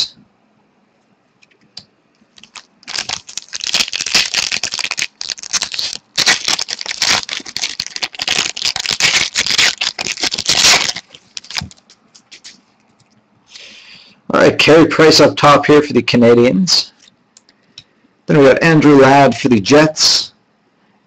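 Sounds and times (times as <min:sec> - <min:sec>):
card pack wrapper crinkling: 0:02.3 - 0:13.1.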